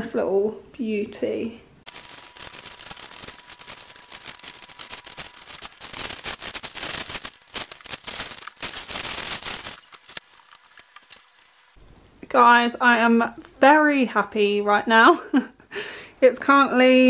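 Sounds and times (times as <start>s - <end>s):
paper tearing and crumpling: 1.9s - 11.8s.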